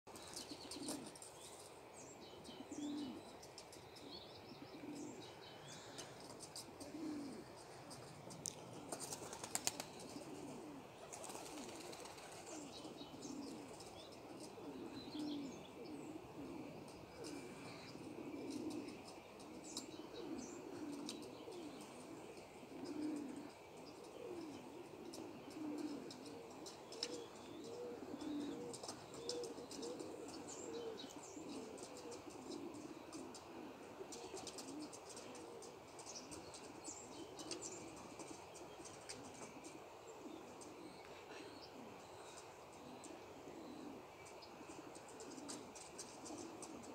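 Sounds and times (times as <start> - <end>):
pigeons cooing: 0.1 - 46.9
small birds chirping: 0.1 - 46.9
wing flutters: 6.1 - 12.7.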